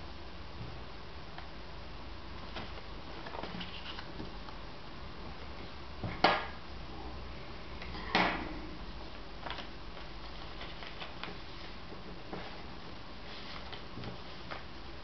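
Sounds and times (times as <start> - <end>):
steady low hum: 0.0 - 15.0
paper folding crackles: 2.4 - 4.4, 9.4 - 14.8.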